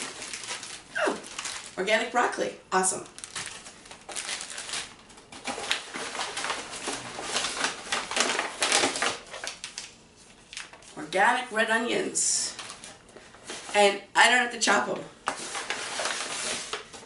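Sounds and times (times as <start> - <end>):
plastic and paper bags crinkling: 0.0 - 2.3, 3.0 - 11.0, 12.5 - 13.8, 15.3 - 17.0.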